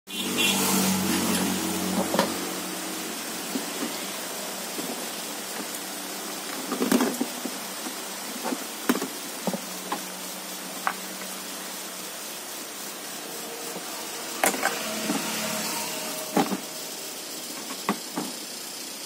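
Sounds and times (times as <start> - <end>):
background hiss: 0.2 - 19.0
low hum: 10.1 - 17.8.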